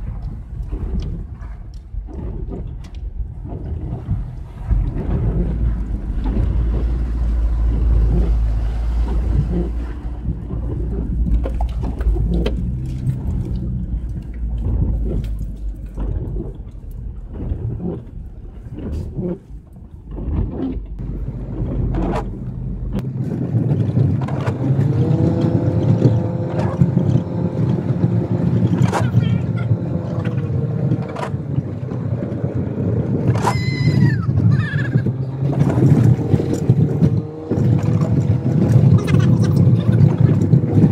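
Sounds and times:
van engine rumble: 0:00.0 - 0:31.8, 0:33.3 - 0:40.9
engine whine: 0:00.0 - 0:40.9.

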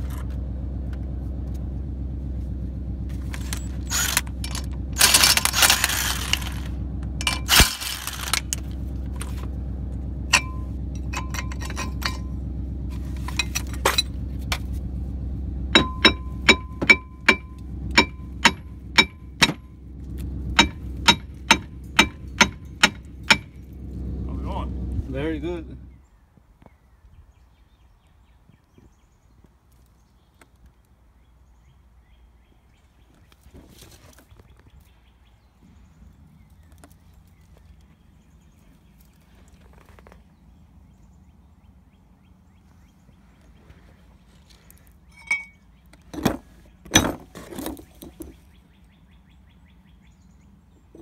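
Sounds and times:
rustle: 0:00.0 - 0:09.6, 0:12.8 - 0:15.1, 0:32.7 - 0:41.2, 0:42.6 - 0:49.0
low steady hum: 0:00.0 - 0:26.1
hammer clanking on metal: 0:10.3 - 0:12.4, 0:15.8 - 0:19.7, 0:20.6 - 0:23.6
bird chirps: 0:47.9 - 0:51.0.

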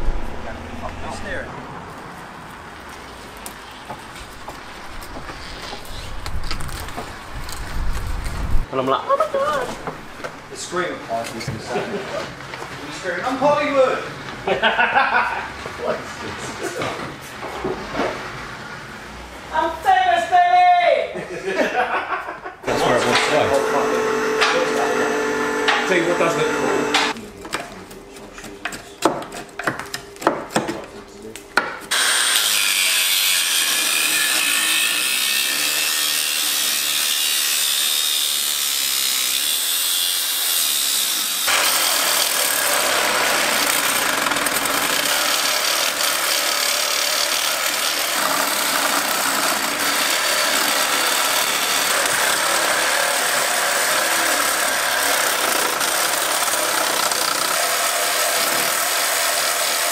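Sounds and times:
power saw cutting steel pipe: 0:22.7 - 0:27.2, 0:31.9 - 0:59.9.

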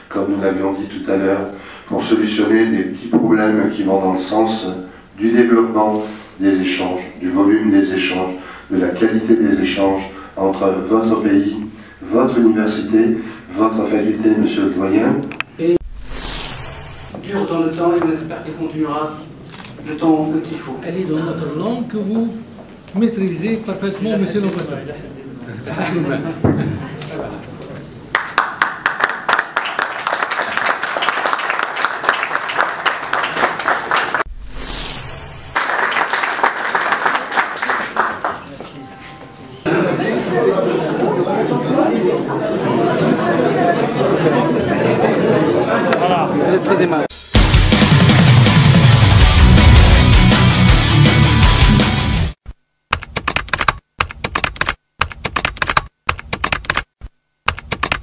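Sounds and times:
audience applauding: 0:28.1 - 0:34.3, 0:35.6 - 0:38.7
keys typing rapidly: 0:52.9 - 0:58.0.

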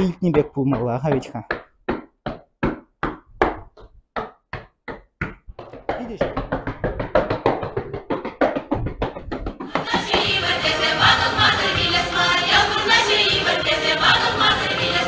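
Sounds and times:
boots stamping on tiled floor: 0:00.0 - 0:10.4
music: 0:09.6 - 0:15.0.

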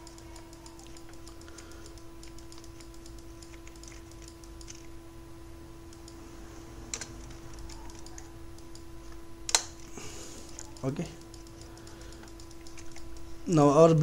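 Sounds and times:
keyboard and mouse clicks: 0:00.0 - 0:04.9, 0:05.9 - 0:06.2, 0:06.9 - 0:08.9, 0:10.5 - 0:13.3
steady low hum: 0:00.0 - 0:14.0.

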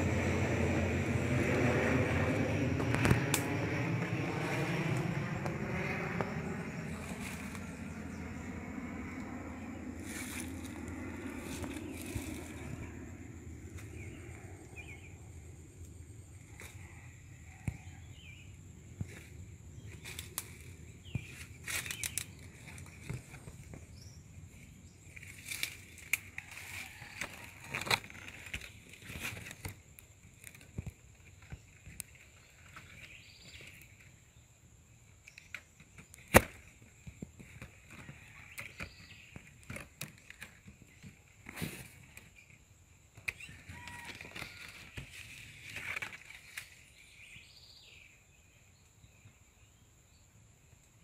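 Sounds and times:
leaves rustling against camera: 0:06.9 - 0:07.9, 0:09.9 - 0:12.8, 0:19.0 - 0:34.2, 0:37.4 - 0:42.6, 0:43.2 - 0:47.3.

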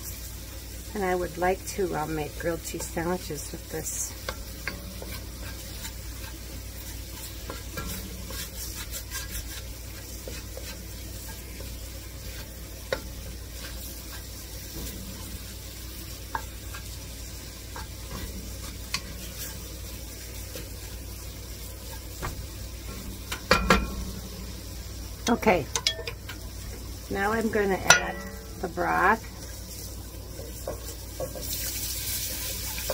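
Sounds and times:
soft sizzle: 0:00.0 - 0:32.9
wooden spoon stirring vegetables: 0:00.8 - 0:32.9
spoon tapping pot: 0:23.3 - 0:24.1, 0:25.3 - 0:26.4, 0:27.8 - 0:28.7.

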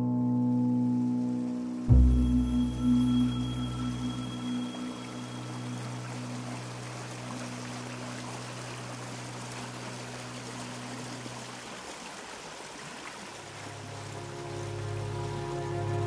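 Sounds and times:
low held musical tone: 0:00.0 - 0:10.1
stream rushing over rocks: 0:03.6 - 0:16.0.

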